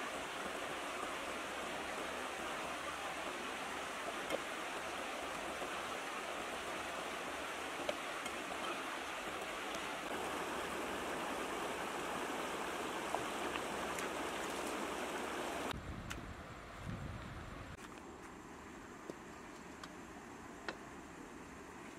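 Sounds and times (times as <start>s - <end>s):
stream babbling over rocks: 0.0s - 15.7s.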